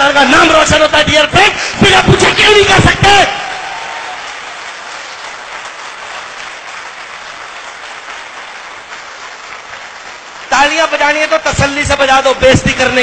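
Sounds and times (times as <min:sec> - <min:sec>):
audience applauding: 0:01.8 - 0:12.2.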